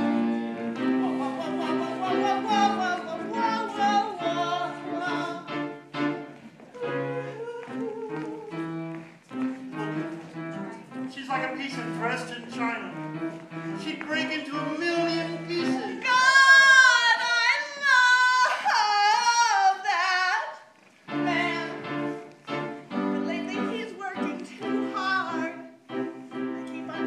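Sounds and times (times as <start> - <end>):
musical accompaniment: 0.0 - 16.3, 21.0 - 27.0
woman singing: 1.0 - 5.6, 6.8 - 8.6, 15.6 - 21.9, 23.2 - 25.6.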